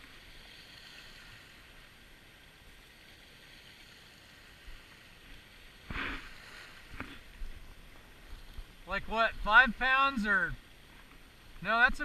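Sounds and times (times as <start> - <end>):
water splash: 5.8 - 7.5.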